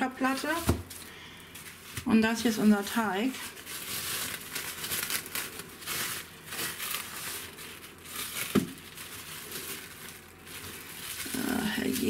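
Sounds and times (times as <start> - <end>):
cling film crinkling: 2.8 - 12.0.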